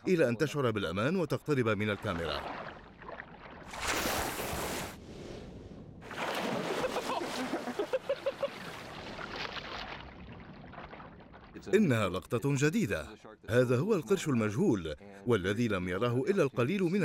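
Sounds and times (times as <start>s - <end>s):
water splashing against boat: 1.7s - 5.1s, 6.0s - 11.7s.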